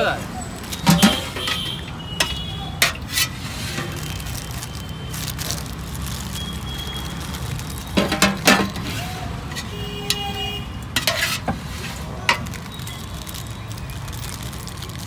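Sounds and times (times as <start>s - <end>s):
metal ladle scraping steel pot: 0.7s - 4.1s, 7.9s - 12.6s.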